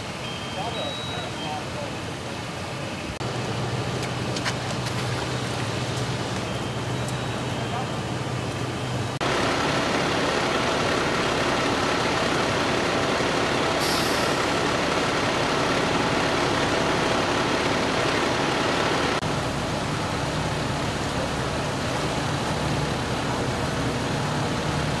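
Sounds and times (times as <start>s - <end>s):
diesel engines idling: 0.0s - 25.0s
brief high hiss: 13.8s - 14.4s.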